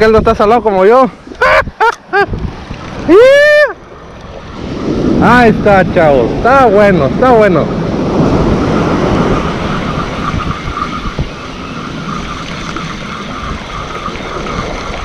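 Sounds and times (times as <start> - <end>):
wind buffeting microphone: 0.0 - 15.0
surf breaking on beach: 1.6 - 15.0
fluttering whir: 8.1 - 15.0.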